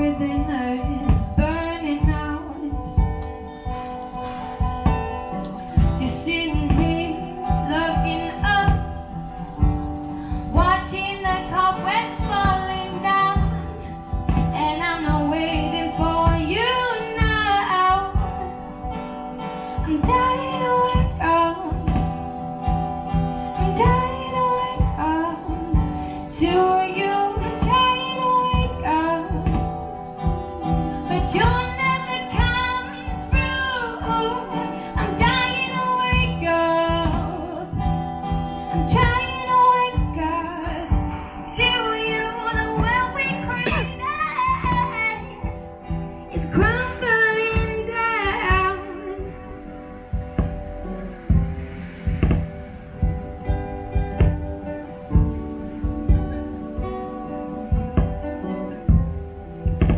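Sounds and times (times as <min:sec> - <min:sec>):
woman singing: 0:00.0 - 0:04.8, 0:05.7 - 0:22.5, 0:23.4 - 0:49.8
strummed acoustic guitar: 0:00.0 - 0:59.9.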